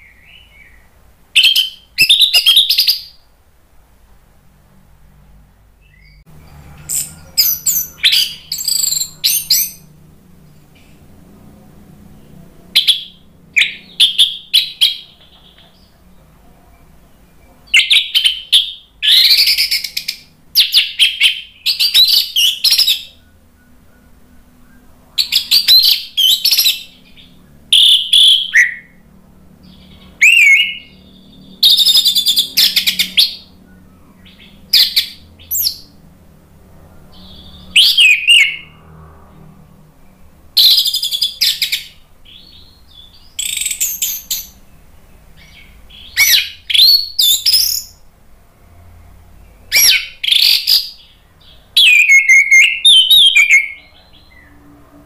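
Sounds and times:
thrush singing whistled phrases: 0.0s - 3.2s, 6.8s - 9.9s, 12.8s - 15.9s, 17.7s - 29.0s, 29.6s - 36.0s, 37.1s - 38.8s, 40.6s - 44.6s, 45.4s - 48.0s, 49.7s - 54.4s.

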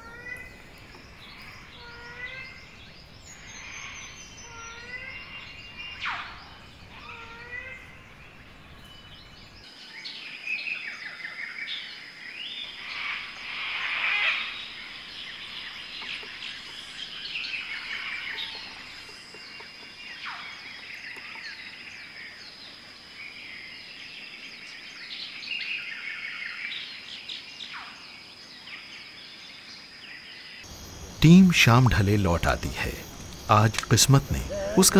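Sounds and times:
birds chirping and whistling: 0.0s - 22.6s.

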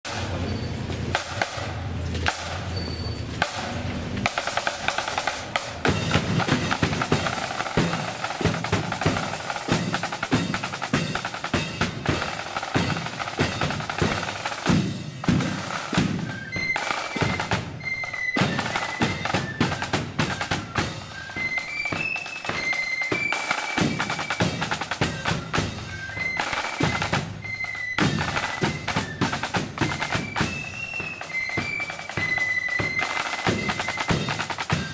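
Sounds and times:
cymbals: 0.1s - 34.9s
snare drums rolling: 0.1s - 34.9s
high flute notes: 15.4s - 34.9s.

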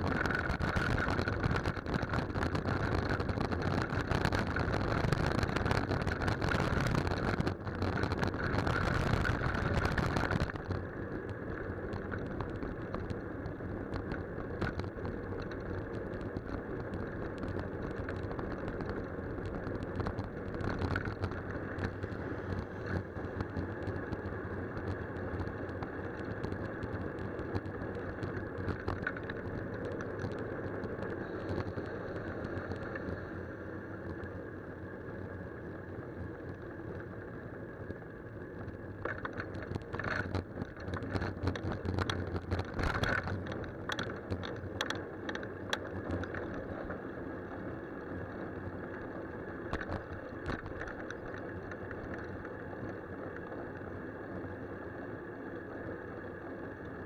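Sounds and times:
wind and tyres on wet road: 0.0s - 57.0s
sharp clicks and knocks: 39.0s - 46.6s.

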